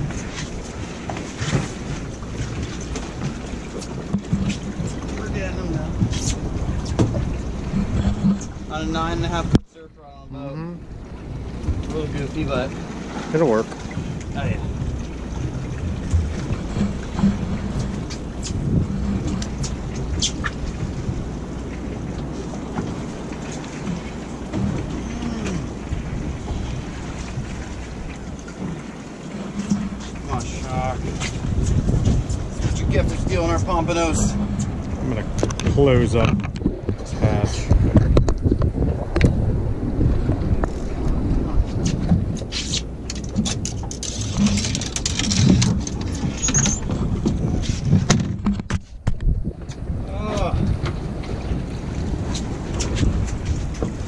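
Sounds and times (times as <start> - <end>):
water sloshing against boat hull: 0.0 - 54.0
wind buffeting microphone: 0.0 - 54.0
fishing gear clicking and knocking: 35.3 - 37.0, 42.4 - 49.3.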